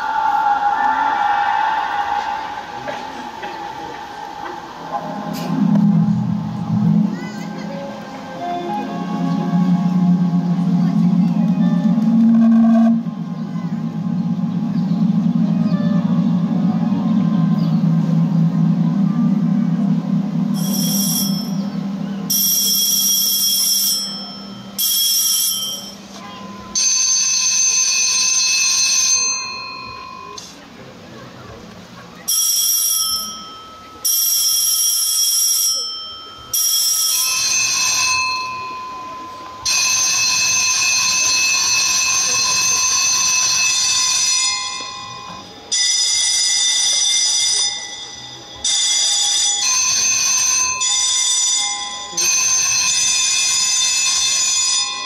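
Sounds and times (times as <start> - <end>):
electric bell ringing: 19.4 - 30.4, 32.3 - 55.0.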